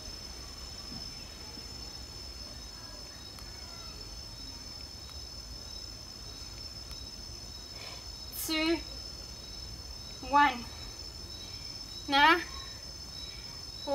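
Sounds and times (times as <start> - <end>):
insects chirring: 0.0 - 13.9.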